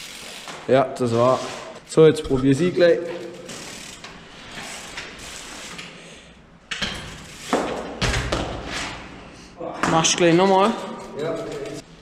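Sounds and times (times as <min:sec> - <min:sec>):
bicycle freewheel clicking: 0:00.0 - 0:00.7, 0:03.2 - 0:07.6, 0:10.5 - 0:11.8.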